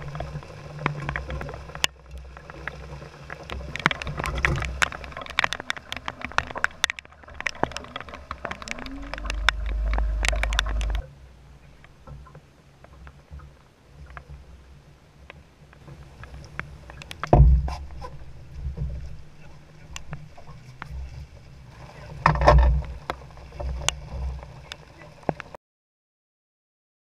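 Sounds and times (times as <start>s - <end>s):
sharp ticks of raindrops: 0.0s - 11.0s, 15.2s - 17.5s, 19.8s - 21.0s, 21.7s - 25.6s
rain: 0.0s - 25.6s.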